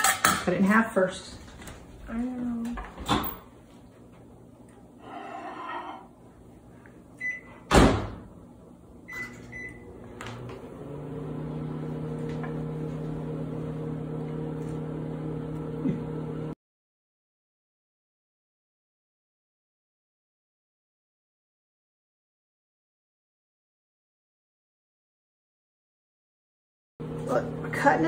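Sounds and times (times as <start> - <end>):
microwave oven humming: 6.2 - 16.6, 27.0 - 28.0
microwave door shutting: 7.7 - 8.2.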